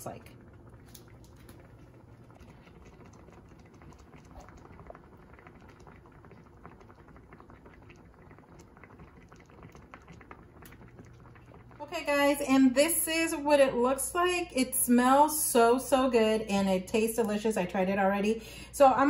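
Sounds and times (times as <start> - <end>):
sauce simmering in a pan: 0.0 - 14.1
little bubbling pops: 0.4 - 11.8.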